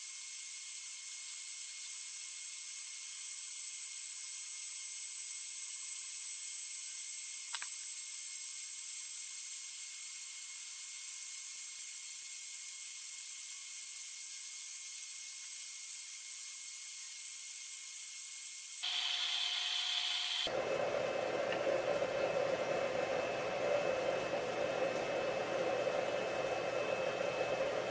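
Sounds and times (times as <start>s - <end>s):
high hiss with whining tones: 0.0s - 20.8s.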